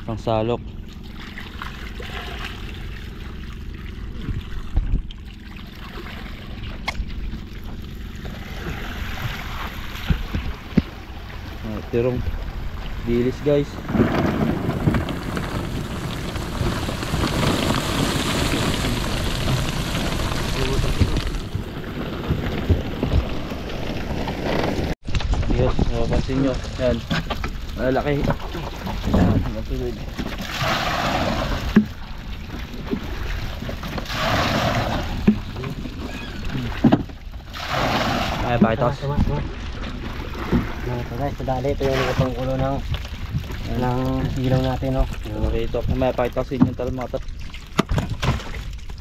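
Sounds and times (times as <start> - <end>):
low rumble: 0.0 - 47.5
water splashing around boat: 0.0 - 49.0
water spattering: 14.5 - 21.5, 26.5 - 39.1.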